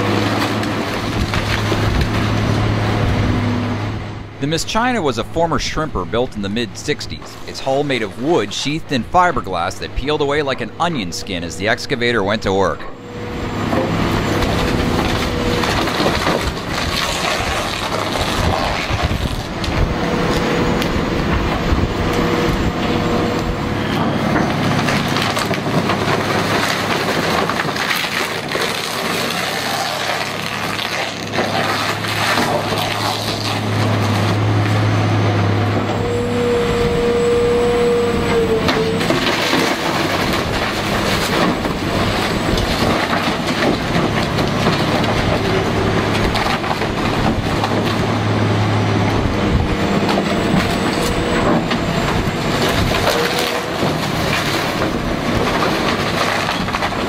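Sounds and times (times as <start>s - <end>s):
boat hull crunching and splintering: 0.0s - 3.1s, 13.7s - 21.6s, 24.0s - 34.9s, 38.4s - 57.0s
excavator diesel engine: 0.0s - 57.0s
machine whine: 35.7s - 40.8s.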